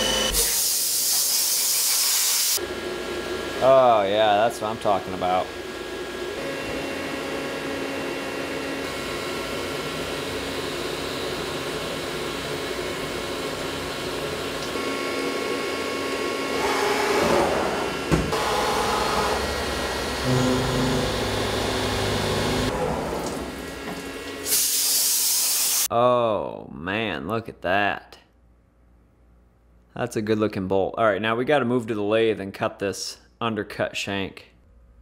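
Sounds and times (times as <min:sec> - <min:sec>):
compressed air hiss: 0:00.4 - 0:02.6, 0:24.4 - 0:25.9
milling machine humming: 0:02.6 - 0:25.1.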